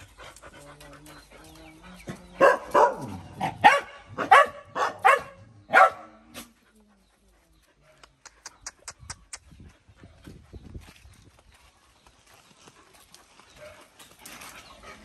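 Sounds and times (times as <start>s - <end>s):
dog barking angrily: 2.4s - 6.2s.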